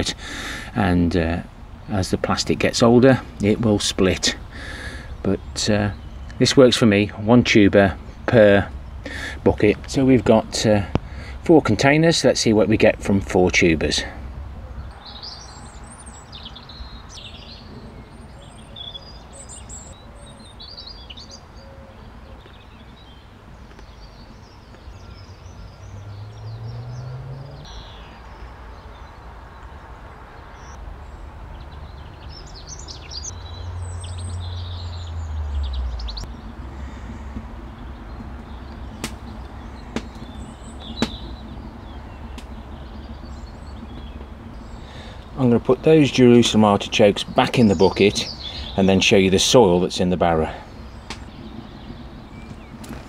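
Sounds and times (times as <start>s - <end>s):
low outdoor rumble: 0.0s - 53.0s
small birds chirping: 0.0s - 53.0s
low hum rising in pitch: 24.7s - 29.9s, 30.7s - 44.9s.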